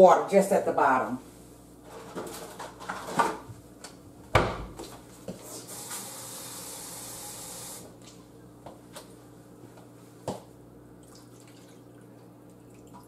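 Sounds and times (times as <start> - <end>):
cabinet knocks and clicks: 4.3 - 4.8
kitchen faucet running: 5.6 - 7.9.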